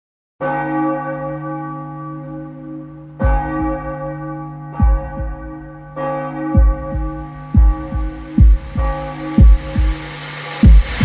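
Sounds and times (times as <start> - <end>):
deep bell tolling: 0.4 - 11.0
deep booming thumps: 3.2 - 4.0, 4.8 - 11.0.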